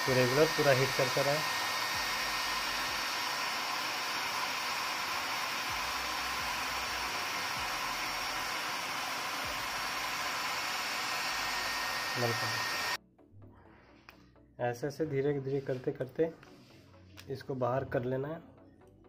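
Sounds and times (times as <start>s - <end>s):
hair dryer running: 0.0s - 13.0s.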